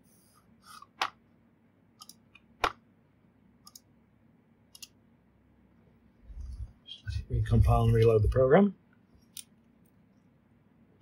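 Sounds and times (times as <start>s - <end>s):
computer keyboard clicks: 3.6s - 3.9s, 4.7s - 5.0s.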